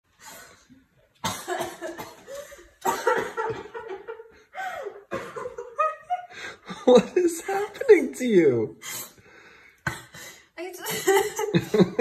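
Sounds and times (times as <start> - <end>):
woman coughing and spluttering: 1.2 - 3.7, 5.1 - 5.6
laughter: 1.5 - 7.2, 10.8 - 12.0.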